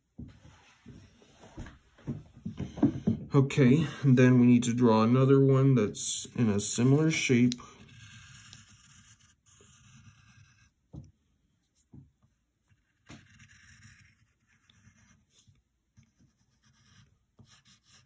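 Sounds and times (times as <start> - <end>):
pencil scratching on paper: 5.8 - 10.8, 11.5 - 18.0.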